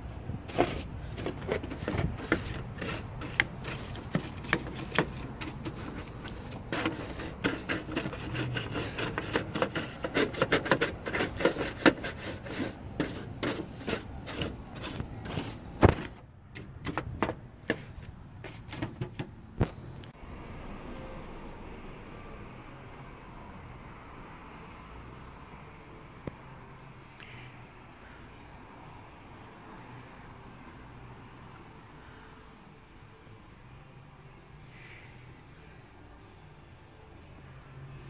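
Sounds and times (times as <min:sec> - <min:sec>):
brush scrubbing sheet metal: 0:00.4 - 0:19.3.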